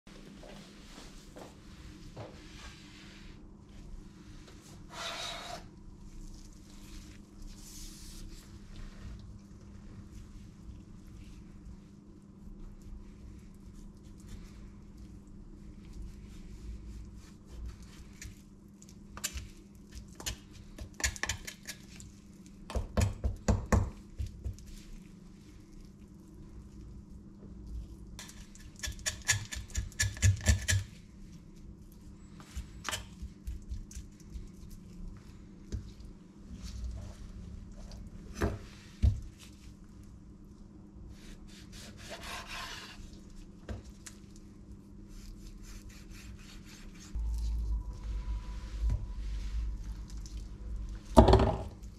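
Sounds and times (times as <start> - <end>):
knife sawing through meat: 41.5 - 43.0.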